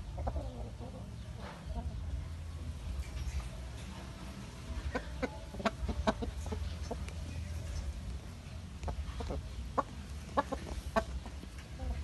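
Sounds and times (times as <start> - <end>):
rooster clucking: 4.8 - 7.1, 8.8 - 12.0.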